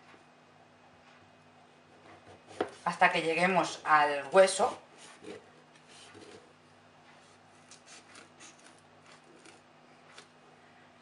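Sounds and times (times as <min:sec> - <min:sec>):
faint steady hum: 0:00.0 - 0:11.0
knife scraping and clicking avocado: 0:07.6 - 0:10.4.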